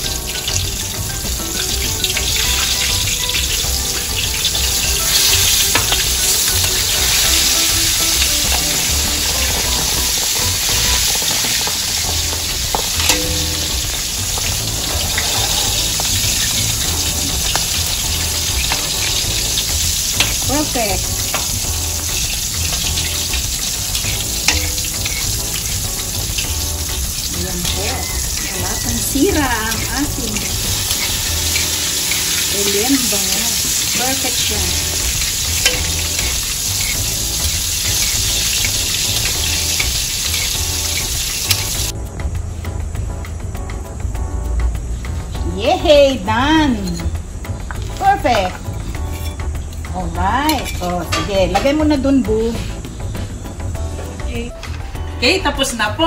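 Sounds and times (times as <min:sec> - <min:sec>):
fish deep-frying in oil: 0:00.0 - 0:53.8
metal spatulas clicking on wok: 0:12.7 - 0:13.8, 0:22.2 - 0:26.5, 0:35.2 - 0:37.1.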